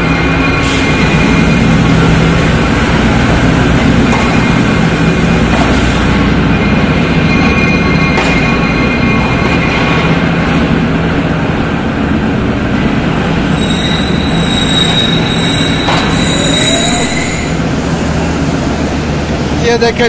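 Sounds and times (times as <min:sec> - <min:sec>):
train coaches rumbling: 0:00.0 - 0:20.0
high wheel squeal: 0:13.5 - 0:17.8.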